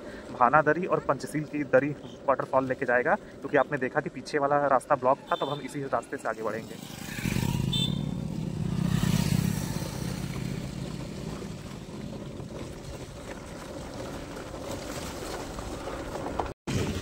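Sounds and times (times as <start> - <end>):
road and wind noise: 0.0 - 17.0
vehicle engine hum: 6.3 - 16.5.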